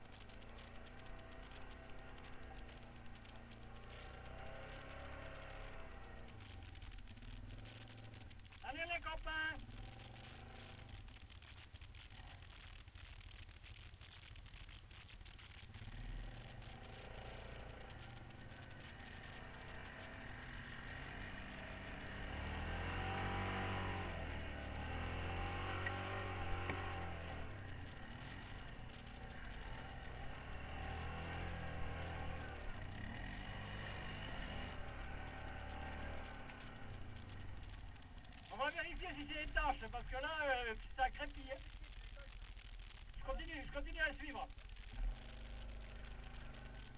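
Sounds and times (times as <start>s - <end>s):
muffled quad bike engine rumble: 0.0s - 46.9s
small clicks and knocks: 9.6s - 20.2s, 25.0s - 38.5s.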